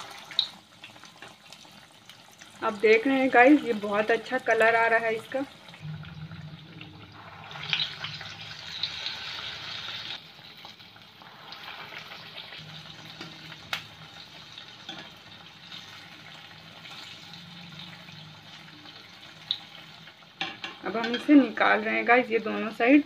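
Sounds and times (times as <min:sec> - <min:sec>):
food sizzling in hot oil: 0:00.0 - 0:23.0.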